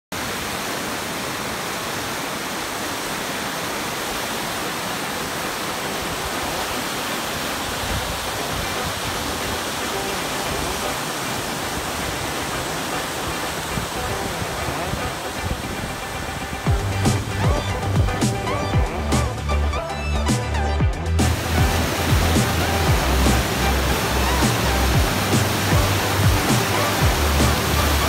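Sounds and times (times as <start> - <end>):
whitewater rapids rushing: 0.1 - 28.0.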